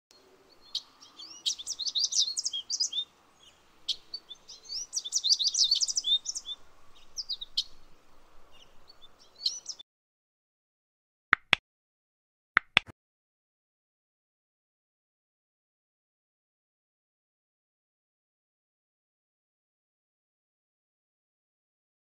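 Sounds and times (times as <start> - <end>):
songbirds singing: 0.1 - 9.8.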